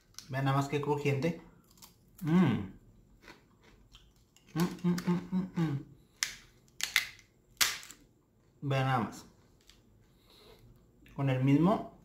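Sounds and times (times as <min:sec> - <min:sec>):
person speaking: 0:00.3 - 0:01.5, 0:02.2 - 0:02.8, 0:04.5 - 0:06.0, 0:08.6 - 0:09.4, 0:11.1 - 0:12.0.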